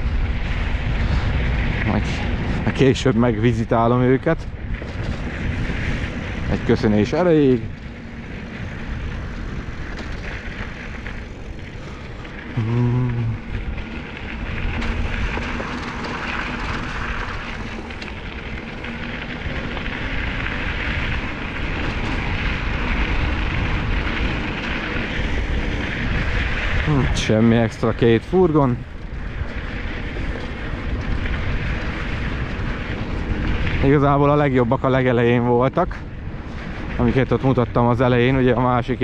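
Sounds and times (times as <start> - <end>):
wind rushing: 0.0 - 37.9
wheels rolling over dirt: 0.0 - 39.0
voice humming: 12.5 - 13.6.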